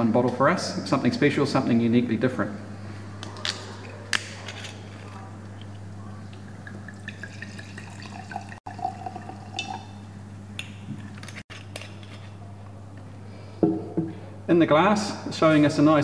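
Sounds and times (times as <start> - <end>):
wine glugging into a glass: 5.6 - 10.1.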